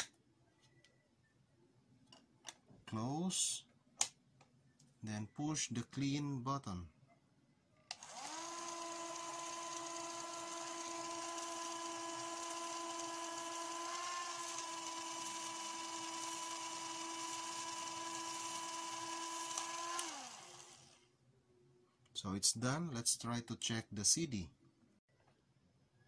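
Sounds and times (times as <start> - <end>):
motor whine spinning disc: 8.0 - 21.0.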